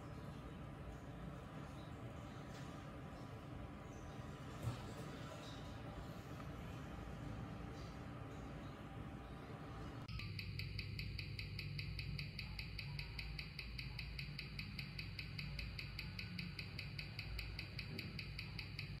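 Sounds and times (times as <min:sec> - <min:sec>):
watch ticking through a speaker: 0:10.1 - 0:19.0.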